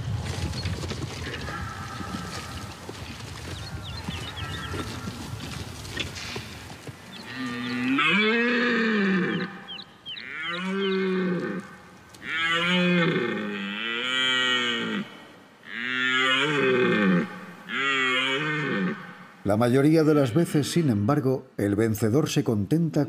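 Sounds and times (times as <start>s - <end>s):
deer stag roaring: 7.3s - 19.2s.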